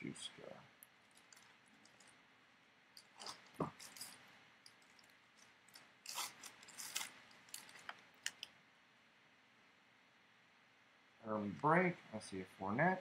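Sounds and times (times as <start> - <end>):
foil wrapper crinkling: 1.0 - 2.2, 3.0 - 8.5.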